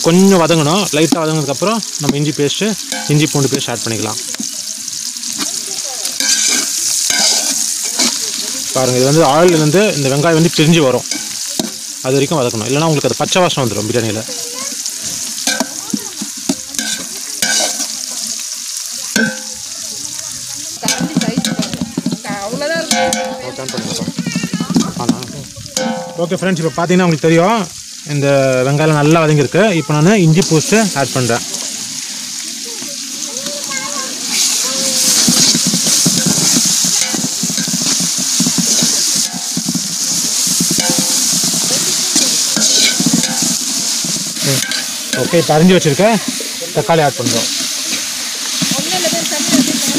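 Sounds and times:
onions sizzling in hot oil: 0.0s - 49.9s
ladle scraping a pot: 6.2s - 8.4s, 16.8s - 17.9s, 34.3s - 45.3s.

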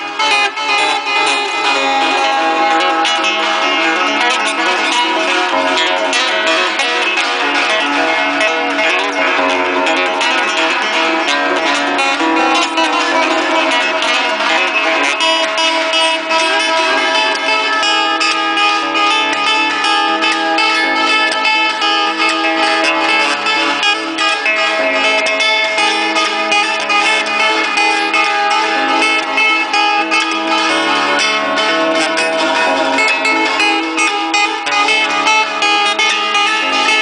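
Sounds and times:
acoustic guitar strummed: 0.0s - 37.0s.

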